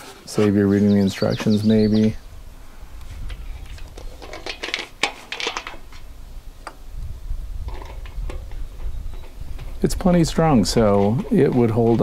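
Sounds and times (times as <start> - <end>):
metal hardware clinking and scraping: 3.2 - 6.1.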